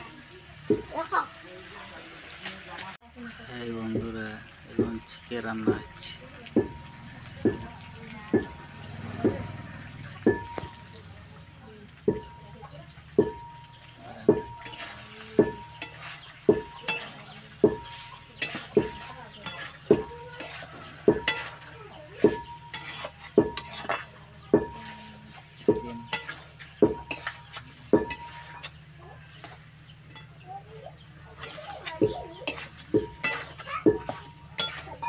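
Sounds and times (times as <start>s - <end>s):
curry sizzling: 0.0s - 35.0s
spatula knocking against pan: 0.7s - 1.0s, 3.9s - 10.9s, 12.1s - 21.6s, 22.2s - 25.0s, 25.6s - 30.3s, 31.4s - 35.0s.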